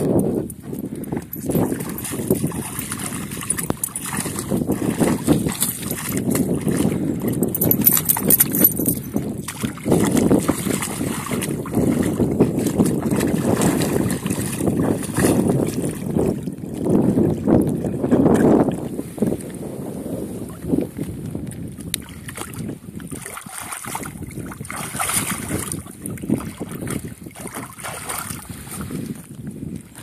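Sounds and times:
dog splashing in puddle: 0:01.6 - 0:08.3, 0:09.4 - 0:16.0, 0:23.1 - 0:25.8, 0:26.8 - 0:28.4.

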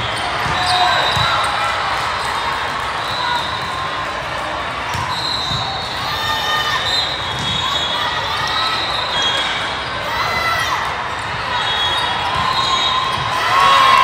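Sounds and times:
shoes squeaking on court floor: 0:00.0 - 0:03.7, 0:04.8 - 0:10.1
echoing hubbub of voices: 0:00.0 - 0:14.0.

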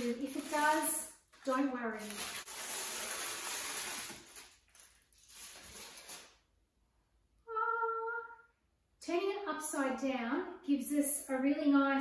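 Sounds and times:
aluminium foil crinkling: 0:00.0 - 0:06.4.

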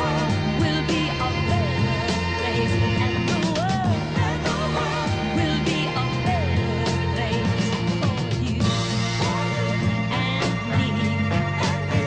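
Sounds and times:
pop-soul song with full band: 0:00.0 - 0:12.0.

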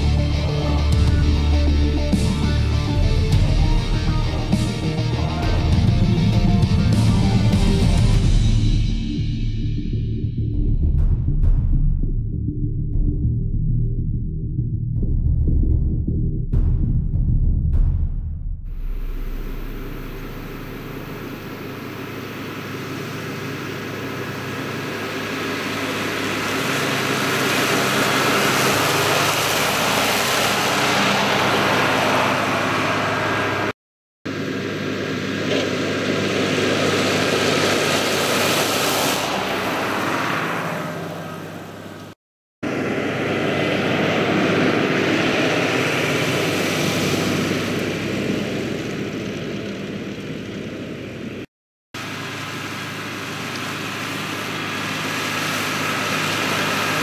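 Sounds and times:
mower cutting grass: 0:00.0 - 0:08.5, 0:18.8 - 0:33.7, 0:34.3 - 0:51.4, 0:52.0 - 0:57.0
tractor diesel engine under load: 0:18.8 - 0:33.7, 0:34.3 - 0:57.0.

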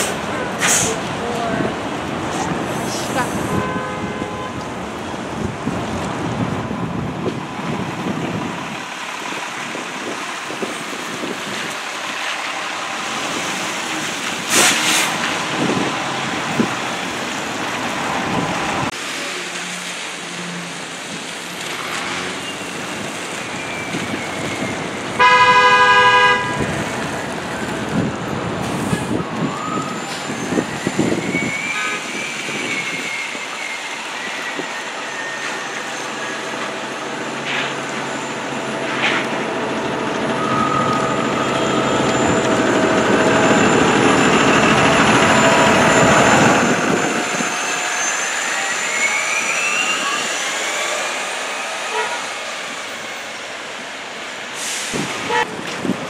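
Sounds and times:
tyres hissing on wet road: 0:00.0 - 0:56.0
vehicle horn toot: 0:03.5 - 0:04.6, 0:25.2 - 0:26.8
bus engine running: 0:36.5 - 0:47.3.

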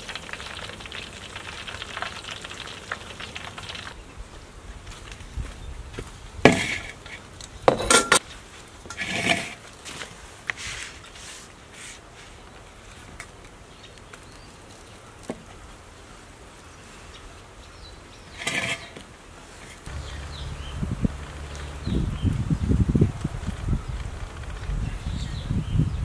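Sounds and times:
dishes and utensils clinking: 0:07.7 - 0:08.2.

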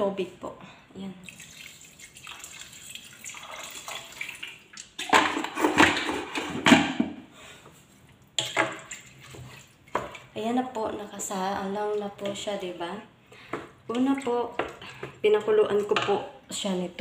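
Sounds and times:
water pouring into a pot: 0:01.2 - 0:05.0.

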